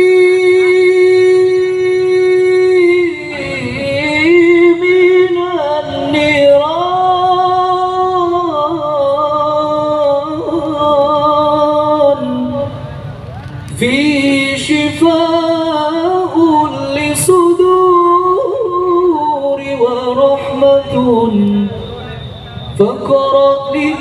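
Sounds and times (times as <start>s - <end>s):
person singing a chant solo: 0.0s - 12.9s, 22.8s - 24.0s.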